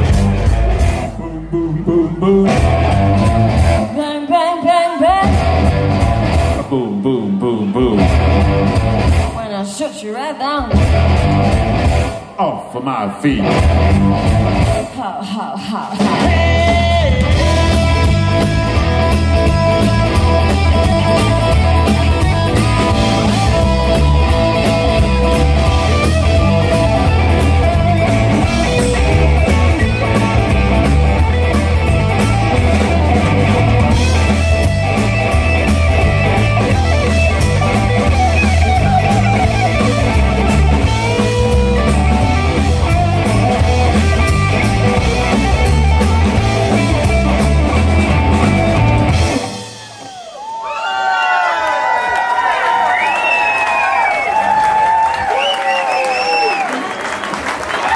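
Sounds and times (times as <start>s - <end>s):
drum kit beat: 0.0s - 1.7s, 2.4s - 4.0s, 5.2s - 6.6s, 8.0s - 9.4s, 10.6s - 12.3s, 13.4s - 14.9s, 15.8s - 50.4s
electric bass: 0.0s - 4.1s, 5.1s - 9.4s, 10.6s - 12.4s, 13.3s - 14.9s, 16.1s - 49.8s
electric guitars: 0.0s - 9.4s, 10.6s - 12.4s, 13.2s - 50.4s.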